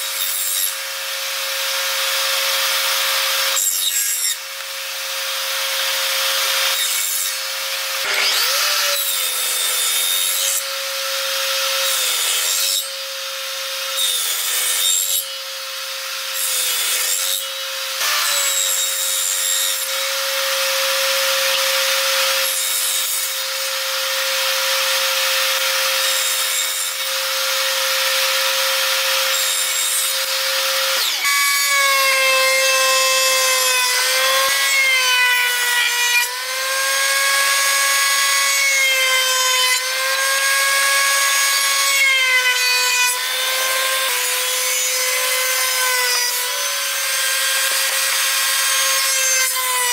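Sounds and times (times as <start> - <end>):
router motor whining: 0.0 - 49.9
table saw cutting wood: 0.0 - 49.9.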